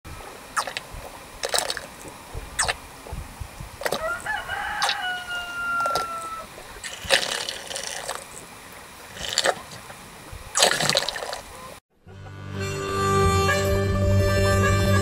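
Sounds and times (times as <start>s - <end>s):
cow drinking from trough: 0.5s - 11.7s
rooster crowing: 3.9s - 6.5s.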